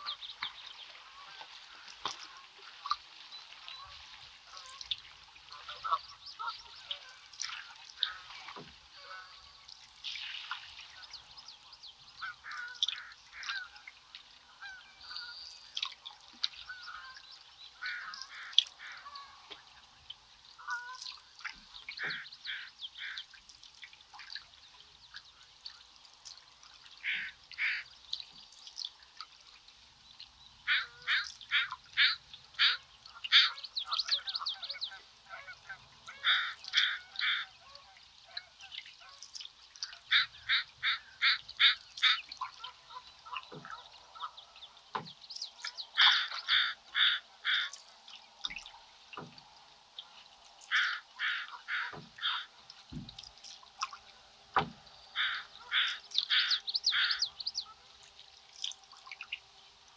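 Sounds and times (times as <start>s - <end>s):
ducks calling: 5.5s - 7.2s, 12.2s - 13.9s, 17.8s - 19.6s, 21.9s - 23.3s, 27.0s - 27.9s, 30.6s - 45.0s, 45.6s - 47.8s, 50.0s - 52.6s, 55.1s - 57.8s
soft knocks or drips: 43.2s - 44.0s, 44.9s - 45.8s, 48.4s - 50.6s, 51.8s - 55.0s.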